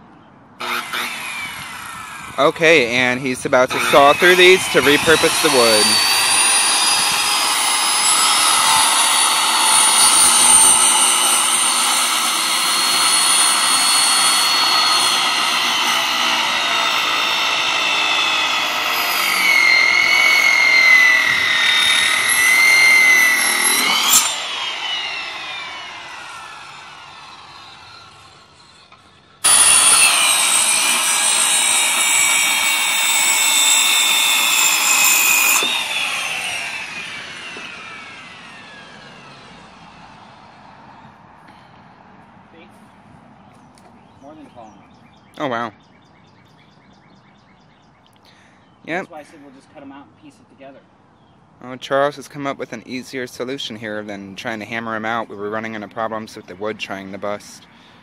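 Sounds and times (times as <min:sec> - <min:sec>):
saw blade winding down: 0:00.6 - 0:40.0
circular saw cutting wood: 0:00.6 - 0:40.5.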